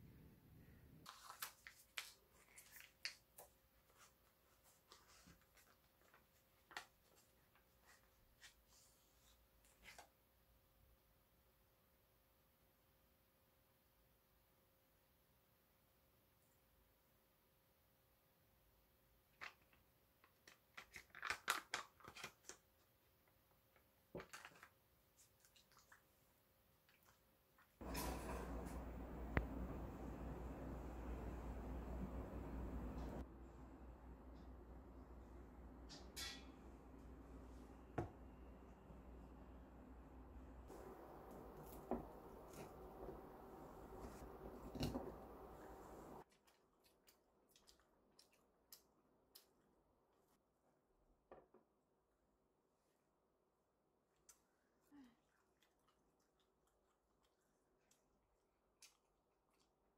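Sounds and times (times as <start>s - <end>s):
foil pouch crinkling: 20.4s - 22.6s.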